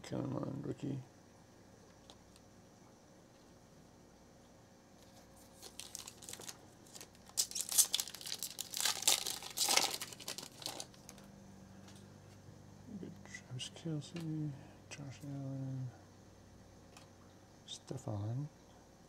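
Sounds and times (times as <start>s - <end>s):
foil wrapper crinkling: 5.0s - 11.3s.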